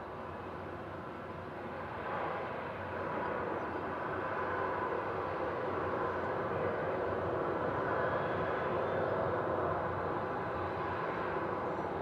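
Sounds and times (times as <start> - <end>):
jet engines taxiing: 0.0 - 12.0.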